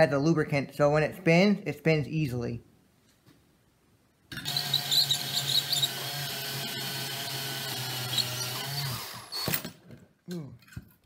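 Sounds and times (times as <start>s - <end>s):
cordless drill motor running: 4.3s - 9.8s
drill bit squealing on steel: 4.4s - 6.3s, 7.6s - 9.6s.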